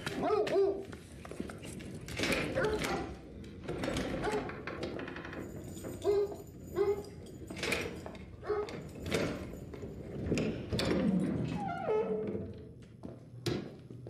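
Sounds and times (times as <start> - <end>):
dog barking: 0.1 - 0.9, 6.0 - 7.0, 8.4 - 8.8
dog whining: 6.0 - 7.2.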